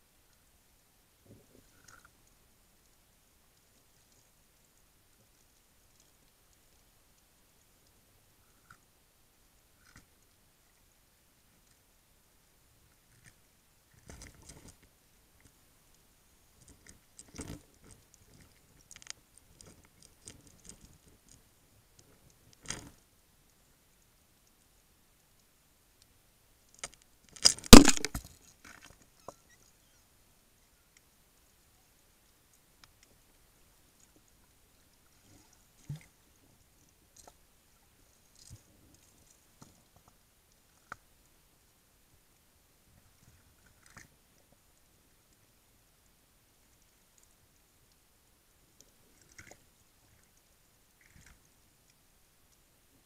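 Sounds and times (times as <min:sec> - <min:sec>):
faint underwater hiss: 0:00.0 - 0:53.0
underwater clicks and knocks: 0:26.8 - 0:29.0.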